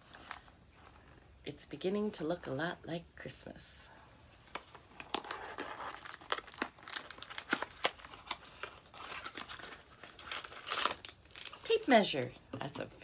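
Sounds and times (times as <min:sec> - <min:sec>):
wrapping paper crinkling and tearing: 0:04.5 - 0:11.9.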